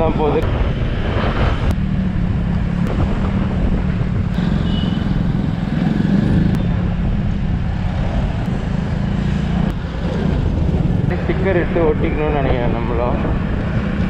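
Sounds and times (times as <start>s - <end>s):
traffic: 0.0s - 14.0s
wind and road noise: 0.0s - 14.0s
motorcycle engine running: 1.8s - 11.1s.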